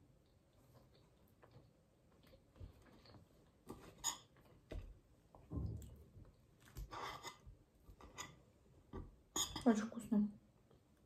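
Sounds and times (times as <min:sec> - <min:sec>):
crunching and chewing: 0:00.2 - 0:04.4.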